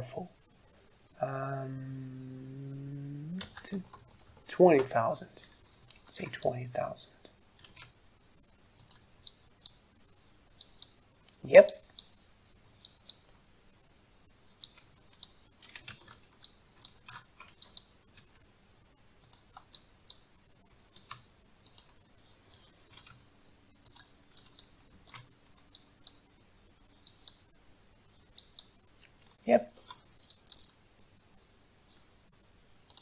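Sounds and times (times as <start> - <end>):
computer mouse and keyboard clicks: 7.6 - 8.0, 8.8 - 9.8, 14.6 - 18.4, 19.2 - 20.3, 20.9 - 26.2, 28.3 - 32.2, 32.8 - 33.0.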